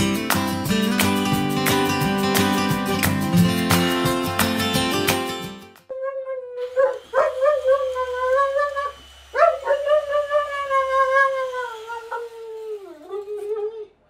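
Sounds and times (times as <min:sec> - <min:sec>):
dog howling: 0:06.0 - 0:14.0.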